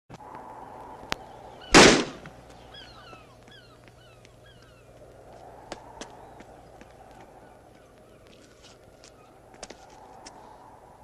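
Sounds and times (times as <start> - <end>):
bird cries falling in pitch: 0.9 - 5.0.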